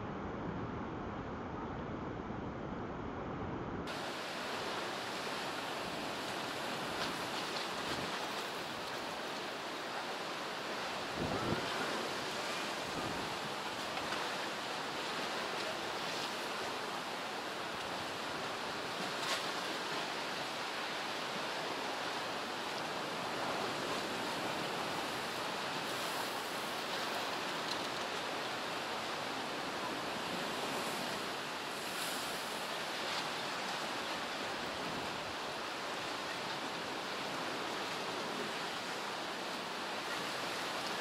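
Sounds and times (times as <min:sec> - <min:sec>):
strong wind: 0:00.0 - 0:08.9, 0:09.6 - 0:14.7.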